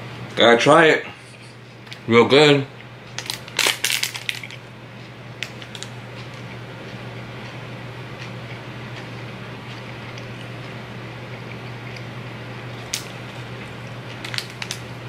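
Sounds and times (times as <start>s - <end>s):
wrapper crackling: 3.2s - 4.6s, 14.2s - 14.9s.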